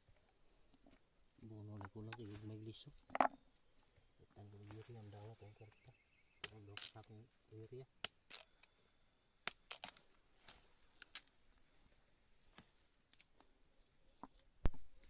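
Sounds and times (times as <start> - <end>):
crickets chirping: 0.0 - 15.0
pods cracking open: 8.0 - 8.5.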